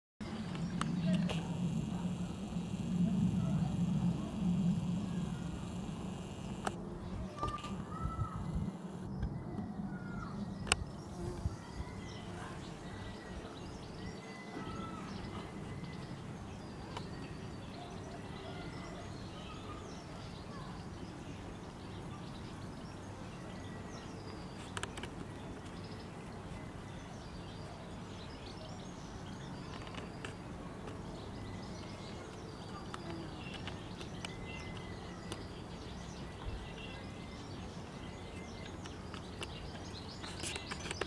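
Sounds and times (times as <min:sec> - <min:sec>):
low background noise: 0:00.2 - 0:41.0
sharp click: 0:06.2 - 0:06.8.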